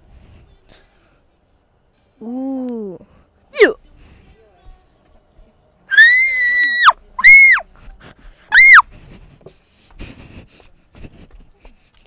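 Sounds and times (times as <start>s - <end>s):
person shrieking: 5.9s - 7.6s, 8.5s - 8.8s.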